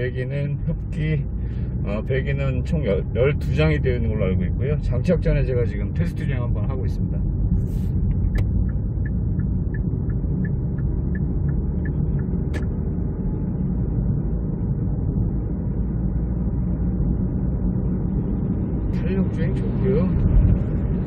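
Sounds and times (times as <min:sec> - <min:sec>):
road and drivetrain rumble in car: 0:00.0 - 0:21.0
light ticking: 0:08.1 - 0:12.8
single click: 0:12.5 - 0:12.7.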